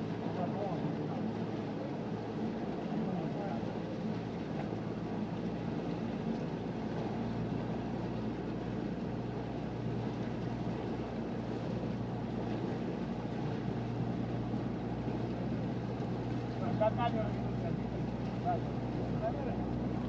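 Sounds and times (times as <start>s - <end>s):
boat engine droning: 0.0s - 20.0s
water rushing past hull: 0.0s - 20.0s.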